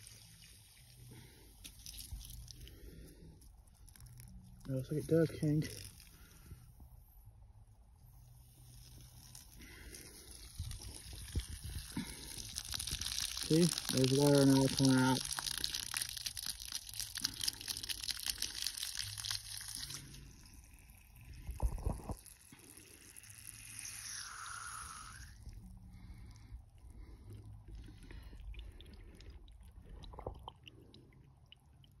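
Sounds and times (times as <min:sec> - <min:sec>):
water splashing from hose onto grass: 0:00.0 - 0:03.0, 0:03.9 - 0:06.4, 0:08.4 - 0:25.5.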